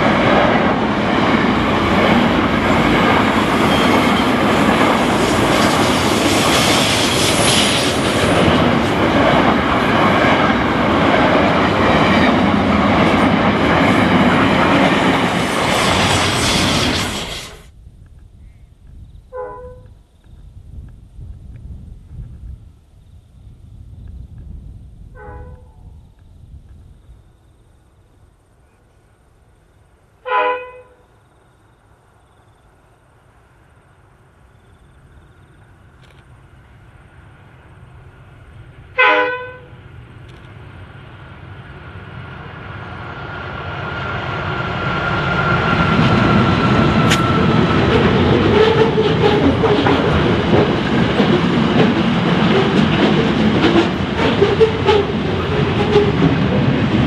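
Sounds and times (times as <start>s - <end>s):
freight train rumbling past: 0.0s - 57.0s
train horn blasts: 19.3s - 20.0s, 25.1s - 25.9s, 30.2s - 31.1s, 38.9s - 39.8s
wheels clicking over rail joints: 47.0s - 57.0s.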